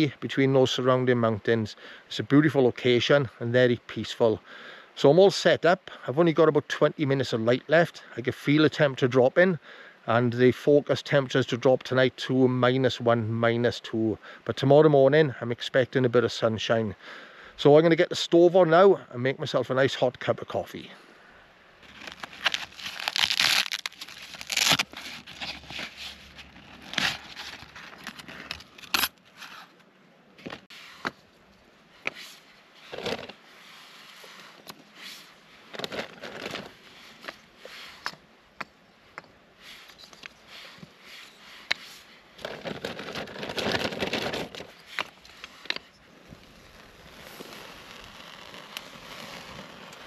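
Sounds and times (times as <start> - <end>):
stove drawn from fabric pouch: 21.8 - 29.7, 32.0 - 38.1, 40.6 - 50.0
rustling: 21.8 - 38.2, 39.6 - 50.0.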